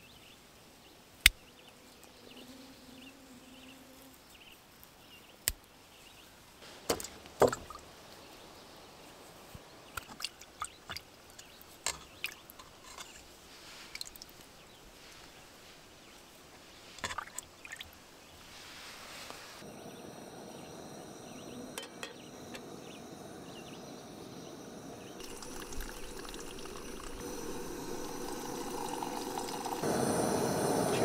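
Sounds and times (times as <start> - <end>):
gas camp stove hissing: 18.5 - 31.0
liquid pouring into cup: 25.2 - 29.8.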